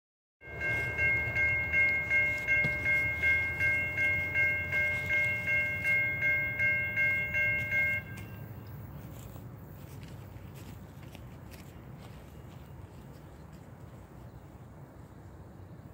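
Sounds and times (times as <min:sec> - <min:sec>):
crossing bell ringing: 0:00.4 - 0:09.0.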